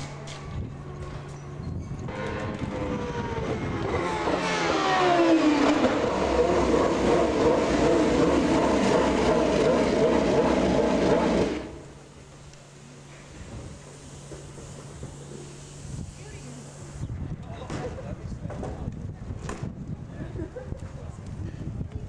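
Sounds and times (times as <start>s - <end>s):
racing car engine at high revs: 2.1s - 11.9s.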